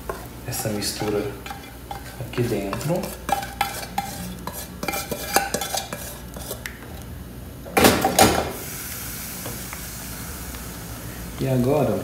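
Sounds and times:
pot boiling hiss: 0:00.0 - 0:07.2, 0:08.0 - 0:12.0
metal bowl clinking against pot: 0:00.9 - 0:06.6.

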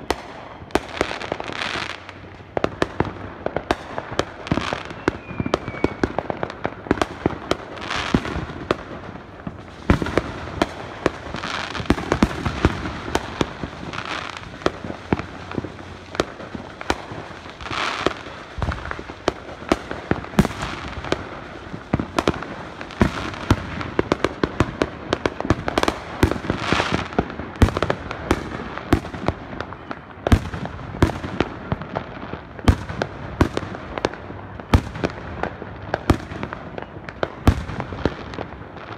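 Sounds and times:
fireworks bangs and pops: 0:00.0 - 0:38.9
firework whistle: 0:04.5 - 0:07.2.

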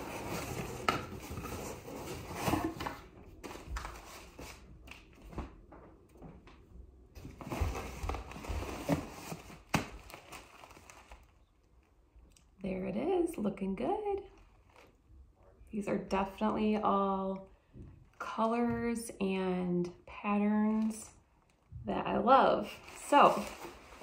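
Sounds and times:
packaging rustling and crinkling: 0:07.2 - 0:12.0, 0:14.3 - 0:15.0, 0:22.6 - 0:24.0.

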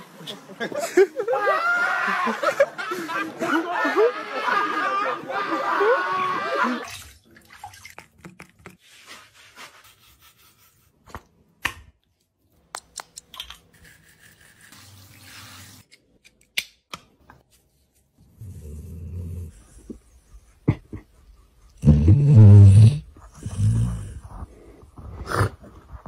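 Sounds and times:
dog growling low: 0:18.4 - 0:19.9.

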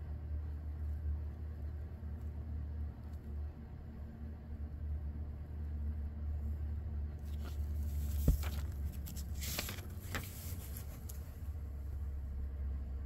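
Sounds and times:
book page turning rustle: 0:07.2 - 0:11.4.

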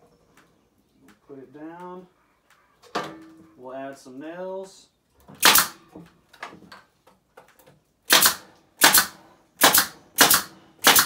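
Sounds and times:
nail gun firing: 0:05.4 - 0:05.8, 0:08.1 - 0:11.0.

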